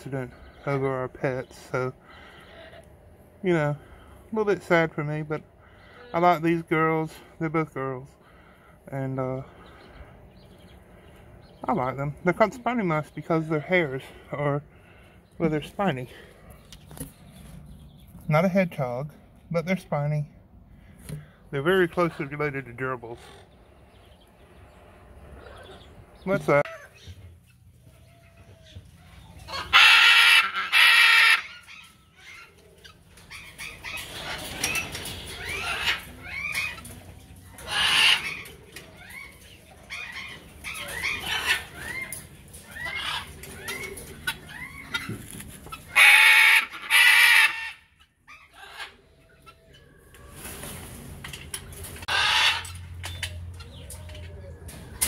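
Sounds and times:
birds calling quickly: 0.0 - 55.0
macaws screeching: 27.9 - 49.8, 52.0 - 53.7.

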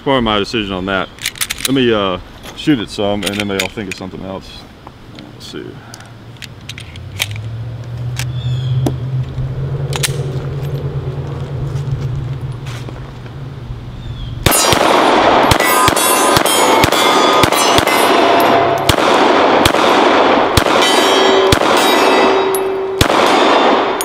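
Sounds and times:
pistol shots: 14.4 - 24.0
steel targets ringing: 14.5 - 18.9, 20.6 - 24.0.

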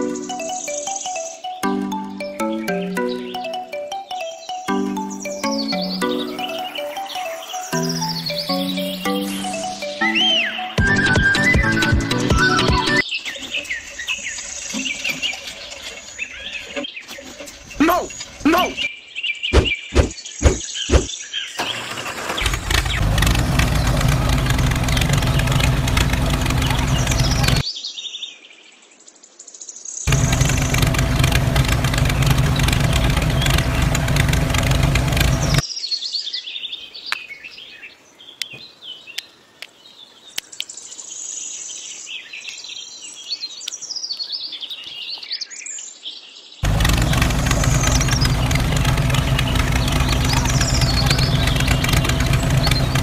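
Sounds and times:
birds chirping: 0.0 - 53.0
tractor engine running: 21.6 - 27.6, 30.1 - 35.6, 46.6 - 53.0.

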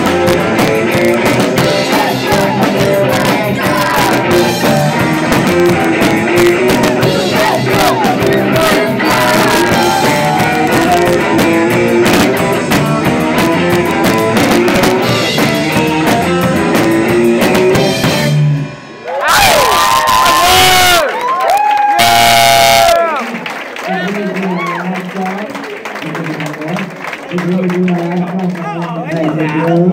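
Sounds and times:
live rock band playing: 0.0 - 21.2, 21.9 - 27.6
audience cheering and shouting: 1.2 - 11.4, 19.0 - 25.0.

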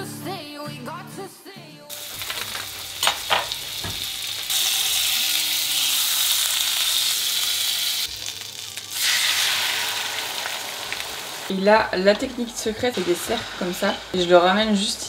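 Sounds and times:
butter sizzling in frying pan: 1.9 - 11.5.

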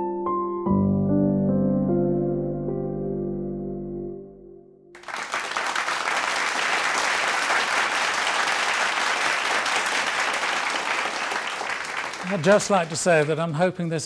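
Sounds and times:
audience applause: 5.0 - 14.0.

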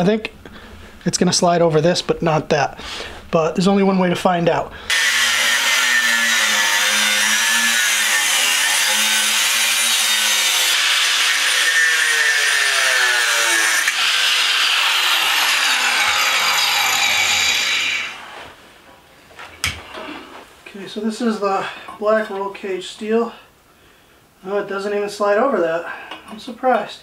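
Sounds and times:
angle grinder cutting steel tube: 4.9 - 18.4.

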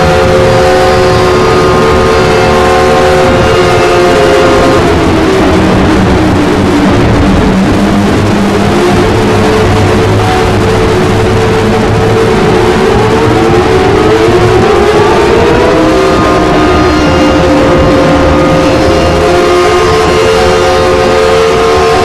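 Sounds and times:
emergency alert alarm tones: 0.0 - 22.0.

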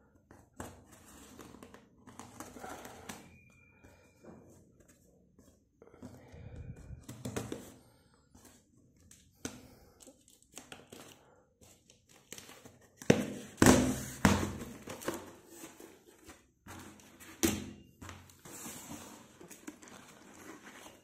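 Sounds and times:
parcel packaging thuds and scraping: 13.0 - 16.0.

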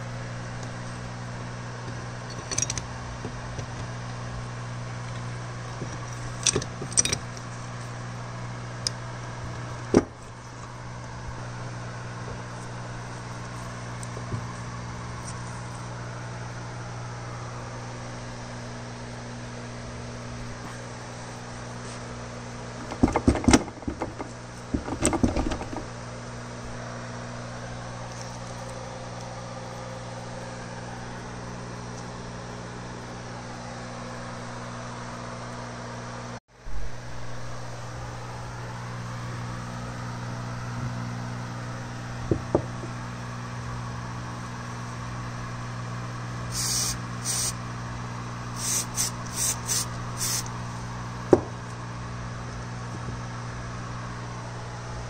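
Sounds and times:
machine hum: 0.0 - 55.0
knocks: 22.9 - 25.9
short hissing bursts: 46.5 - 47.6, 48.5 - 50.5.

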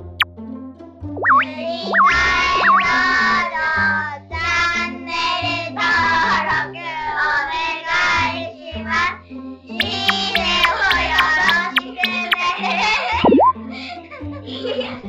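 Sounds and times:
springy boing effect: 1.2 - 3.1, 9.8 - 12.4, 13.1 - 13.5
sung jingle with bass line: 1.2 - 3.4, 13.1 - 13.5.

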